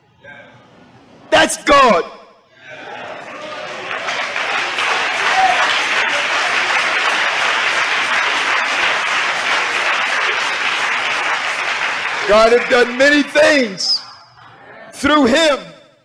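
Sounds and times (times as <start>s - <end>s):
congregation applauding: 3.0s - 14.0s.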